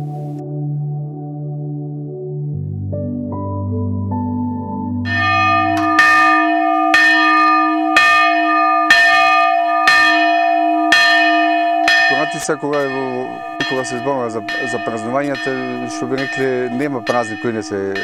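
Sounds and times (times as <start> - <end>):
church bell ringing: 5.1 - 18.0.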